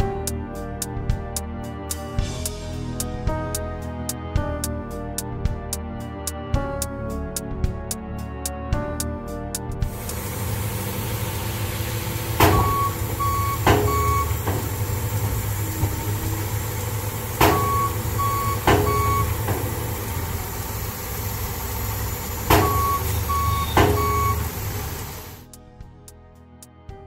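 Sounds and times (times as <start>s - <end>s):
truck engine idling: 9.9s - 25.5s
backup alarm beeps: 12.2s - 15.2s, 17.4s - 19.6s, 22.5s - 24.9s
sharp knocks: 12.4s - 14.8s, 17.4s - 17.9s, 18.6s - 19.8s, 23.6s - 24.3s.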